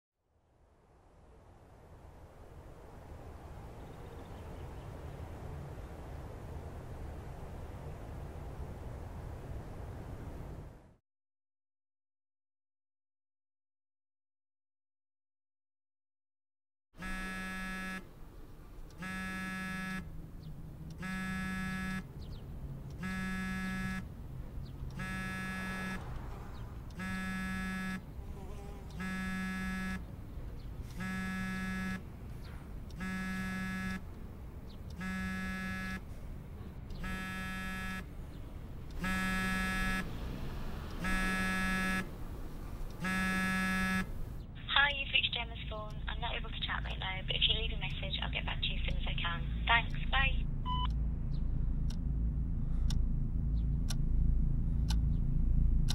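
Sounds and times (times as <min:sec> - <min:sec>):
phone vibrating on tabletop: 0:17.0 - 0:18.0, 0:19.0 - 0:20.0, 0:21.0 - 0:22.0, 0:23.0 - 0:24.0, 0:25.0 - 0:26.0, 0:27.0 - 0:28.0, 0:28.9 - 0:30.0, 0:31.0 - 0:32.0, 0:33.0 - 0:34.0, 0:35.0 - 0:36.0, 0:37.0 - 0:38.0, 0:43.0 - 0:44.1.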